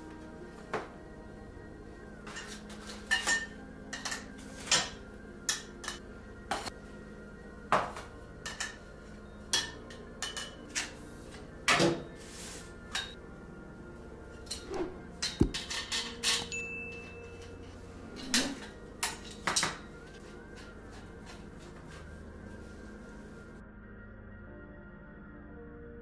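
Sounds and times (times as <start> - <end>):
metal rods clinking: 2.3 - 6.0, 9.5 - 11.0, 14.4 - 17.6.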